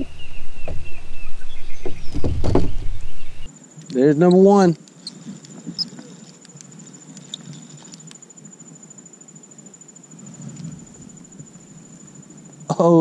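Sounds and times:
high-pitched insect trill: 3.4s - 13.0s.

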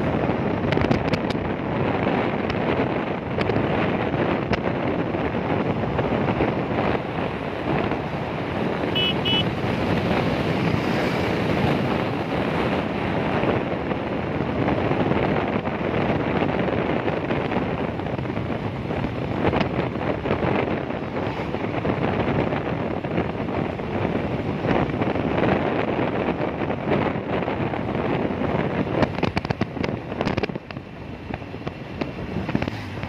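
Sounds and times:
motorcycle road noise: 0.0s - 33.0s
wind rushing over microphone: 0.0s - 33.0s
short high beeps: 9.0s - 9.4s.

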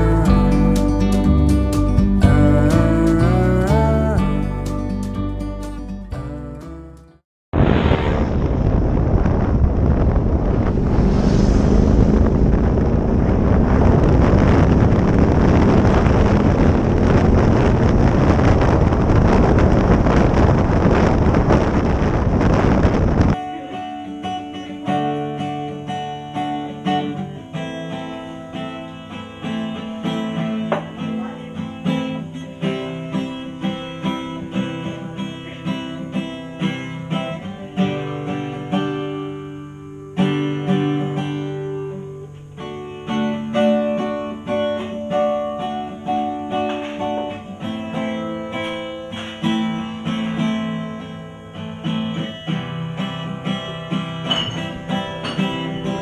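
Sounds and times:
acoustic guitar plucked: 0.0s - 8.6s, 13.3s - 56.0s
wind noise on microphone: 7.6s - 23.4s.

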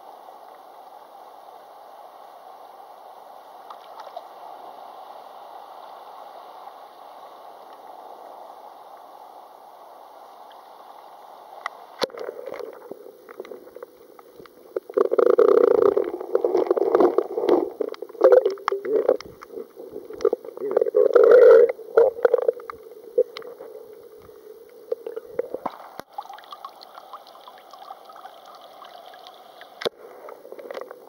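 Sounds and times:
muffled sea-water noise: 0.0s - 31.0s.

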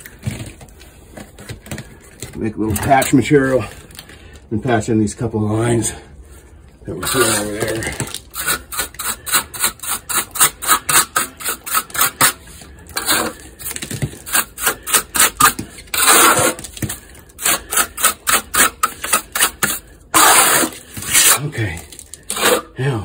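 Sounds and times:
trowel scraping mud on metal: 6.9s - 22.8s.

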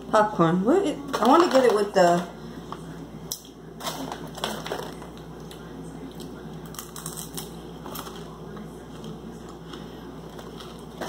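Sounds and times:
plastic snack bag crinkling: 1.1s - 2.0s, 3.8s - 11.0s.

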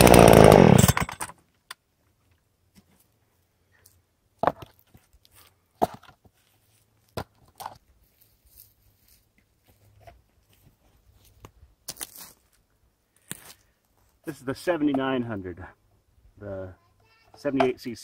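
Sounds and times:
wooden knocks of logs: 4.4s - 5.0s, 5.8s - 6.3s
scuffing in sawdust and pine needles: 6.3s - 7.2s, 7.8s - 14.4s.

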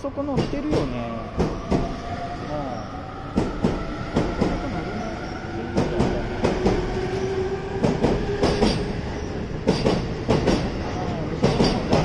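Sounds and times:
train running noise: 0.0s - 12.0s
train wheels clacking over rail joints: 7.8s - 8.9s, 9.6s - 12.0s.

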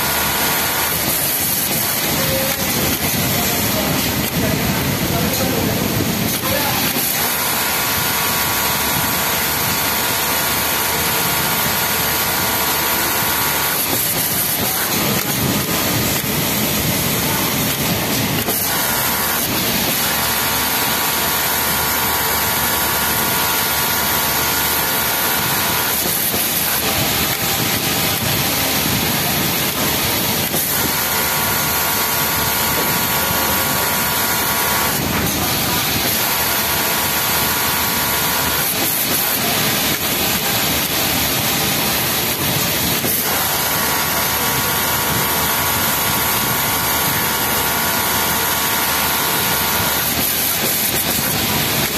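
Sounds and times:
sewing machine whine: 0.0s - 4.4s, 6.3s - 51.9s.

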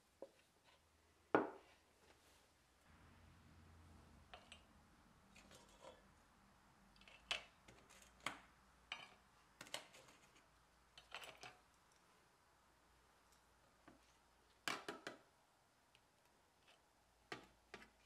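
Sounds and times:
bread crust scraping on metal: 5.3s - 6.1s.

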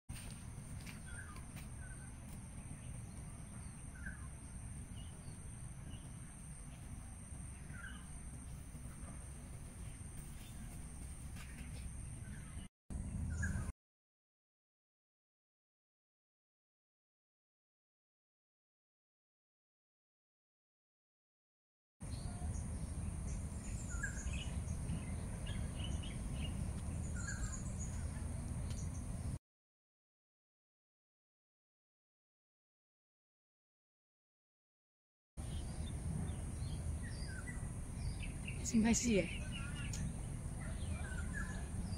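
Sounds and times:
steady low rumble: 0.2s - 13.7s, 22.0s - 29.4s, 35.4s - 41.9s
faint bird chirps: 1.0s - 9.2s, 22.1s - 29.4s.

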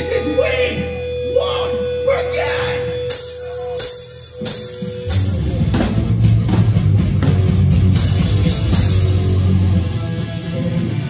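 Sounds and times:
punk band playing loud: 2.8s - 11.0s
drum hits: 4.4s - 9.4s.

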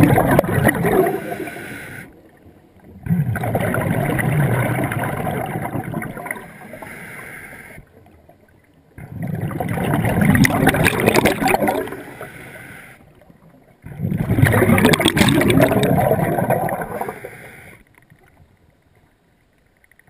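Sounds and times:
gurgling exhaled bubbles: 0.0s - 1.7s, 2.8s - 6.8s, 9.0s - 12.3s, 13.8s - 17.3s
regulator hiss: 1.1s - 2.2s, 6.5s - 7.8s, 12.0s - 13.0s.

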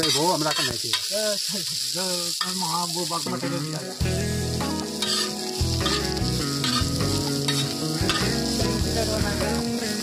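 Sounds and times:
vegetables sizzling in hot oil: 0.0s - 10.0s
steel spatula scraping pan: 5.0s - 8.3s.

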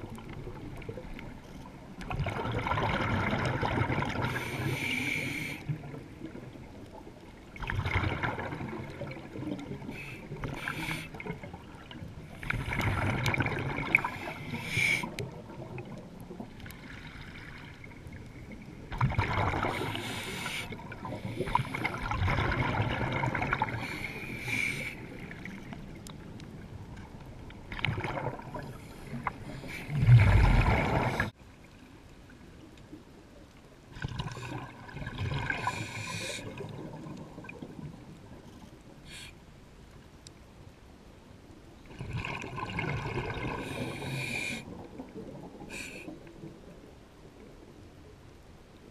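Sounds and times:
quiet water noise: 0.0s - 48.9s
gurgling exhaled bubbles: 2.0s - 4.7s, 7.6s - 17.5s, 18.6s - 24.2s, 27.7s - 31.4s, 34.0s - 38.1s, 41.9s - 45.8s
diver breathing through regulator: 4.3s - 5.7s, 9.9s - 11.2s, 14.0s - 15.2s, 19.7s - 22.0s, 23.7s - 25.1s, 35.5s - 36.6s, 43.5s - 44.7s.

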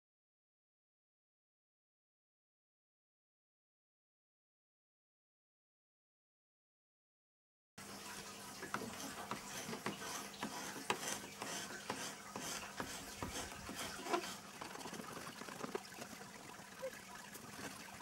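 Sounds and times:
blade scraping lead: 8.1s - 16.3s.

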